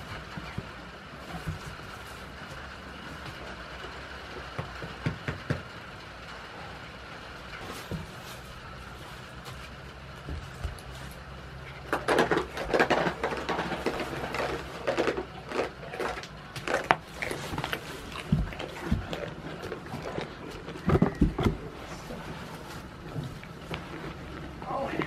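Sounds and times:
goats rustling in straw: 7.6s - 11.3s, 21.7s - 24.6s.

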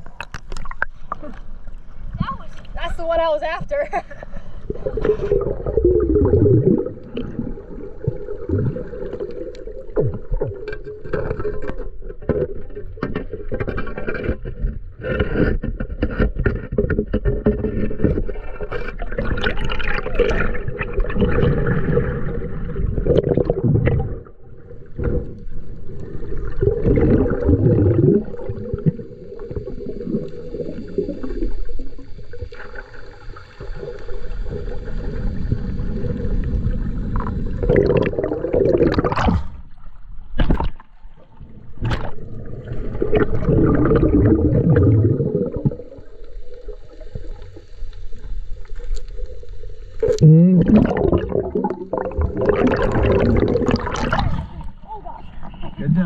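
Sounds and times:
gurgling bubbles: 4.6s - 15.9s, 16.6s - 54.9s
muffled underwater noise: 50.0s - 56.0s.

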